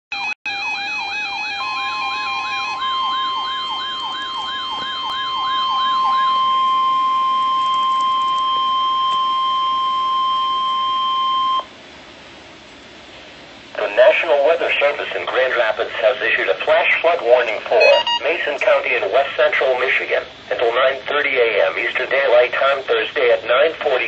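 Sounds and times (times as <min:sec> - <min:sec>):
fast warbling siren: 0:00.2 - 0:11.6, 0:17.7 - 0:18.4
steady radio warning tone: 0:00.6 - 0:11.7, 0:13.7 - 0:24.0
stepping two-tone beep: 0:17.7 - 0:18.4.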